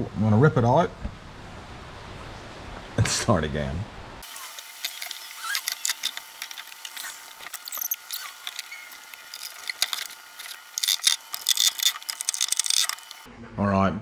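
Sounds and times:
short high squeaks: 4.2s - 13.3s.

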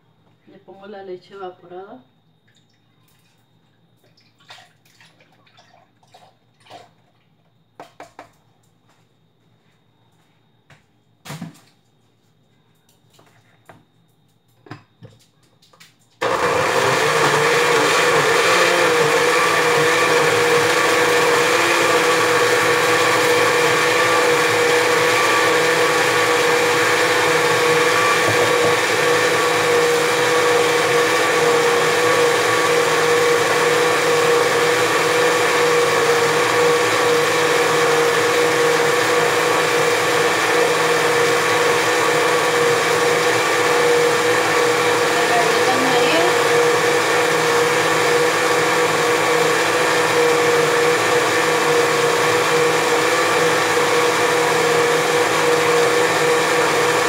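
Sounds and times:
blender motor whine: 16.2s - 57.0s.

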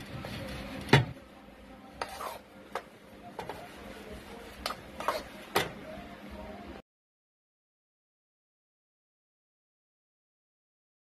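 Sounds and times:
utensil scraping metal bowl: 2.0s - 2.5s, 4.6s - 5.4s.

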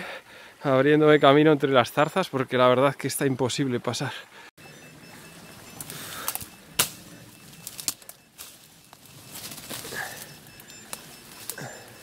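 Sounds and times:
leaves and stems rustling: 4.7s - 12.0s
twigs cracking and snapping: 5.8s - 11.6s.

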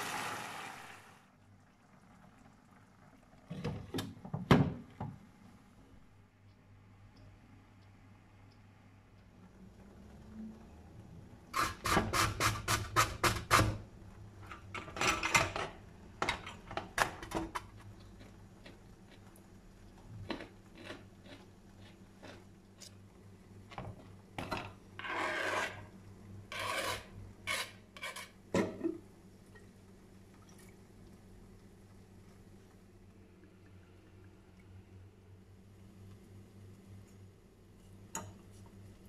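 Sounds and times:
carrot grated on metal grater: 25.0s - 25.9s, 26.5s - 28.4s.

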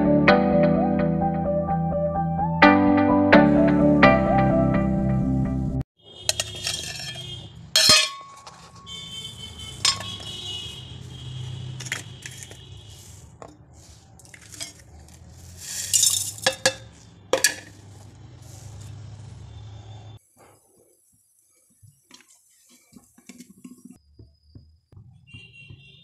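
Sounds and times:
vegetables clinking in metal jar: 6.2s - 8.9s, 9.8s - 10.4s, 11.7s - 12.6s, 14.1s - 17.9s
seeds rattling into jar: 13.8s - 17.0s.

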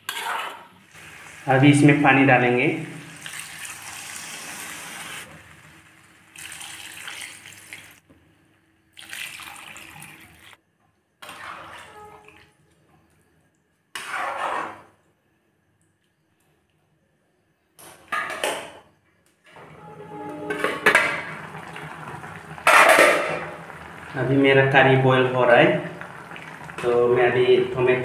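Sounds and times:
water splashing into hot pan: 3.0s - 8.0s, 9.0s - 10.6s, 21.0s - 27.0s.

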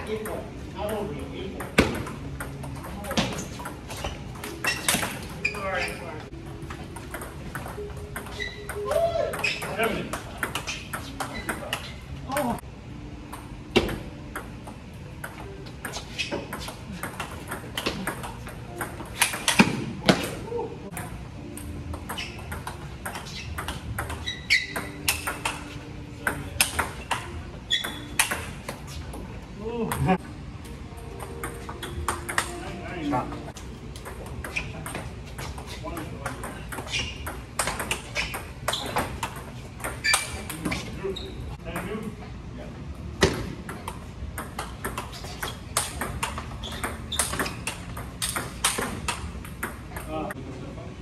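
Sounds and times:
high squeaks: 3.1s - 6.3s, 7.1s - 12.2s, 15.8s - 16.7s, 22.0s - 29.1s, 36.6s - 41.6s, 45.0s - 49.0s
ping pong ball clicking: 7.0s - 11.8s, 16.6s - 19.8s, 20.9s - 28.6s, 31.0s - 32.7s, 36.0s - 40.6s, 43.7s - 50.2s
table tennis ball clicking: 20.9s - 28.5s, 31.1s - 32.6s.

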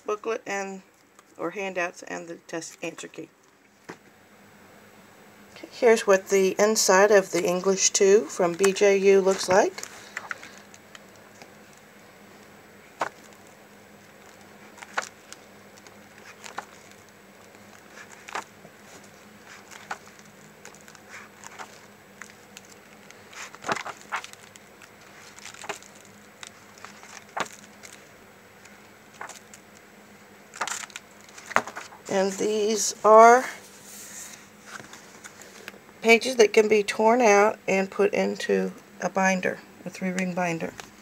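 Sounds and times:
paper pages turning: 8.5s - 11.9s, 13.0s - 29.8s, 30.5s - 32.4s, 33.6s - 35.8s.

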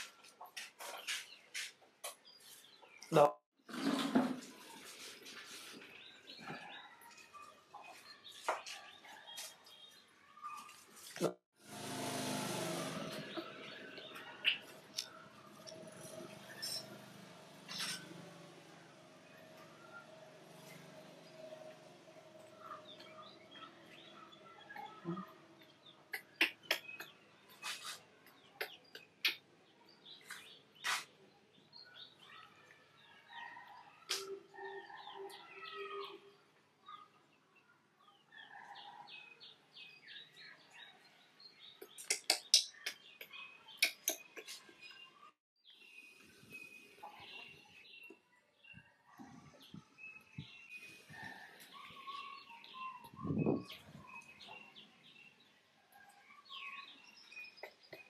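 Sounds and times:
faint bird chirps: 41.7s - 58.0s.

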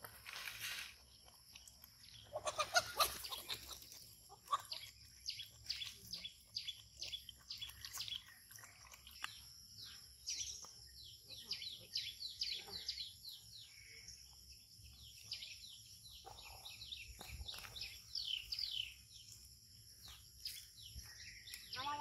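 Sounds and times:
dogs lapping liquid: 3.2s - 10.8s.

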